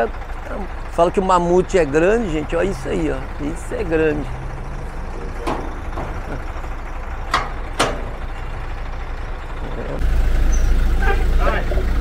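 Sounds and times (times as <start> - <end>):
truck diesel engine idling: 0.0 - 12.0
sharp knocks: 7.3 - 8.3.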